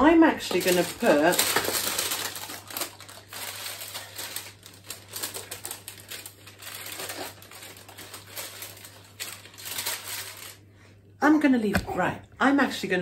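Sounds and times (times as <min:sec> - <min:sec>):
parchment paper crinkling: 0:00.3 - 0:10.6.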